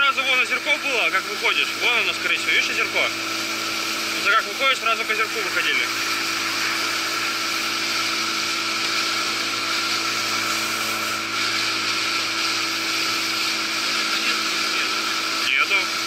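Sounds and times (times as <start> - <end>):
outboard motor running: 0.0 - 16.0.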